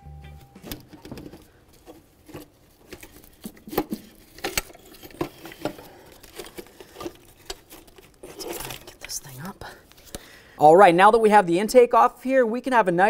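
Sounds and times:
clicks and knocks of tools: 0:00.6 - 0:09.1.

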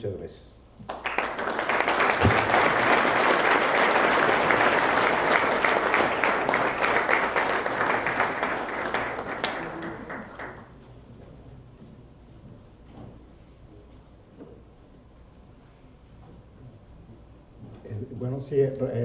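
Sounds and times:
audience applauding: 0:00.9 - 0:10.8.

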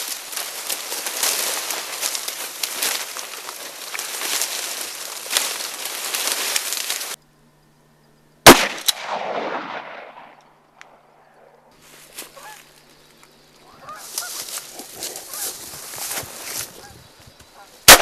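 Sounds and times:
dry reeds rustling: 0:00.0 - 0:07.5, 0:11.3 - 0:18.0
shotgun blast: 0:08.4 - 0:10.5.

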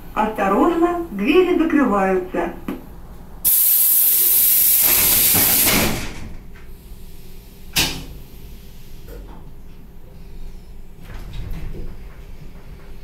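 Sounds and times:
train doors hissing air: 0:03.4 - 0:09.2
doors banging shut: 0:04.9 - 0:06.5.

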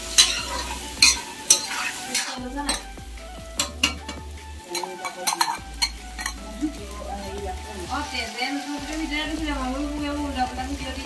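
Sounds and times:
metal spatula scraping pan: 0:00.0 - 0:02.9, 0:03.6 - 0:06.4
meat sizzling in a wok: 0:00.0 - 0:11.0.

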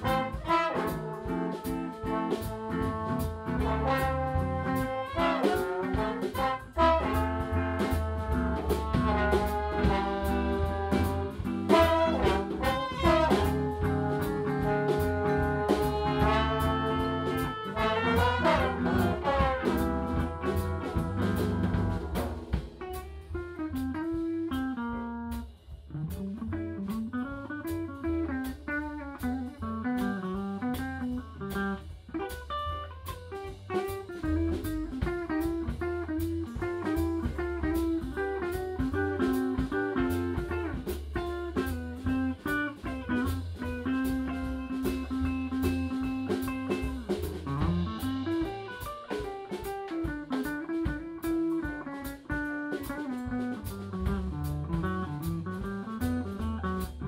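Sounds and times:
trumpets and trombones: 0:00.0 - 0:22.6
bass and drums: 0:00.0 - 0:57.0
guitar line: 0:00.0 - 0:57.0.

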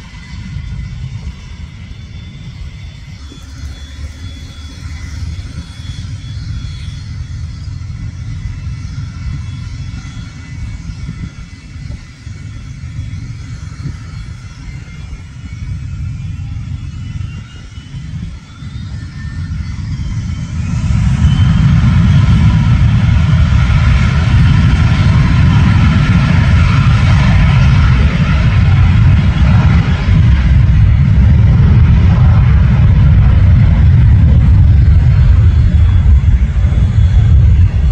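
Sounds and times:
jet engines rumbling and whining: 0:00.0 - 0:37.9.

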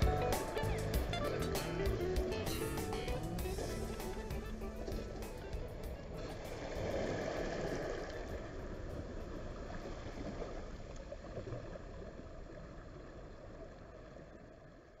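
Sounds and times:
ocean waves washing onto shore: 0:00.0 - 0:11.7.

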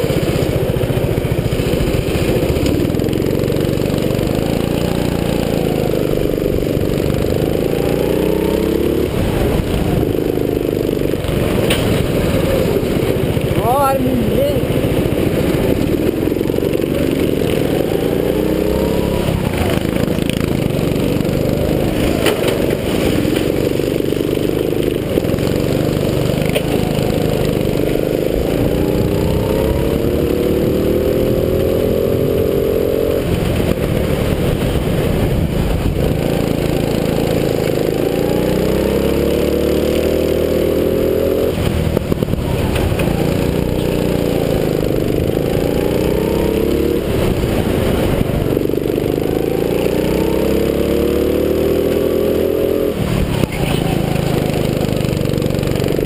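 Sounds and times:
go-kart engine revving: 0:00.0 - 0:56.0.

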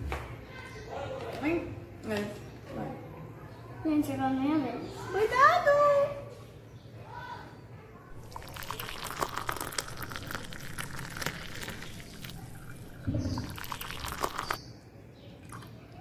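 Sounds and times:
coffee pouring into a cup: 0:08.1 - 0:14.6, 0:15.4 - 0:15.8.

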